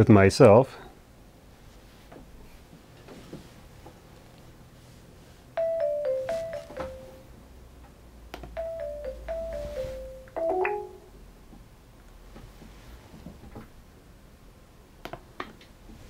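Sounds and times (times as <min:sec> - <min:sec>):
descending chime ringing tone: 0:05.6 - 0:07.2, 0:08.6 - 0:11.2
lower chime: 0:05.6 - 0:07.2, 0:08.6 - 0:11.1.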